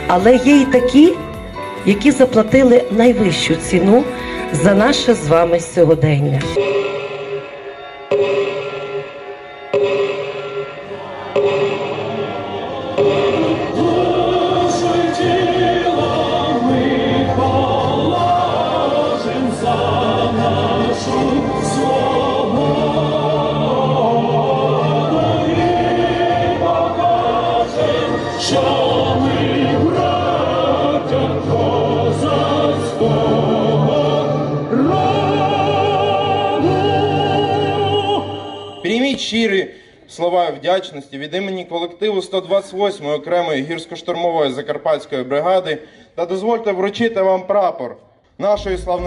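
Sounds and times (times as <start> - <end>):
instrumental accompaniment: 0.0 - 37.7
crowd singing in chorus: 6.5 - 38.8.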